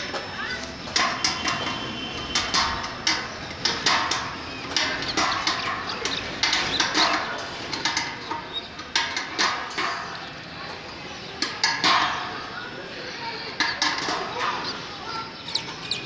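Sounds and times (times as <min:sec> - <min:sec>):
tools knocking and clinking on metal: 0:00.9 - 0:10.3, 0:11.4 - 0:12.3.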